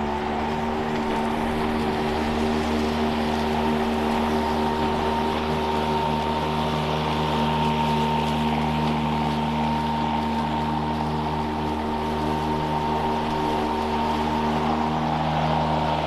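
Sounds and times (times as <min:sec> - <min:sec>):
electric lawn mower cutting grass: 0:00.0 - 0:16.0.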